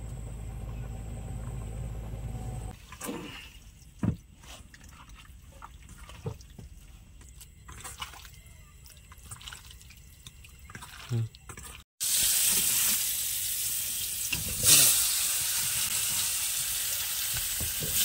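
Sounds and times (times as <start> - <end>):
steady low rumble: 0.0 - 2.8
wet squelching and scraping: 2.7 - 11.8.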